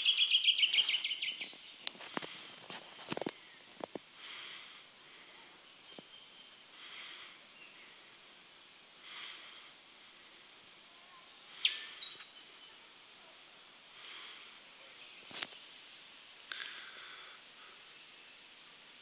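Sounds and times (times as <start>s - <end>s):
soft raspy buzzes: 0.7s - 19.0s.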